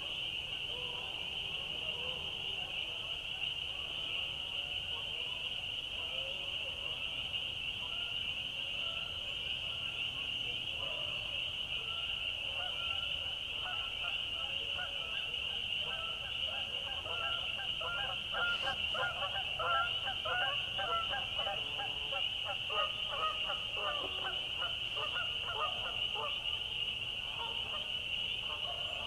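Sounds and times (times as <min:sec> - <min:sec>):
waterfowl honking: 0:14.8 - 0:26.4.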